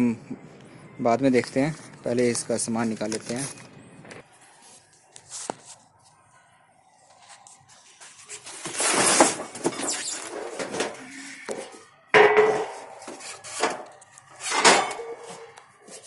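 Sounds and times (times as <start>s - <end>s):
sheet metal clattering on concrete: 12.2s - 13.8s, 14.4s - 15.5s.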